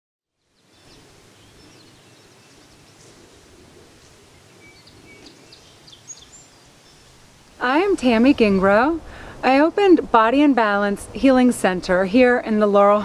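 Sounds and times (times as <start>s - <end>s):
steady rushing background: 7.1s - 12.5s.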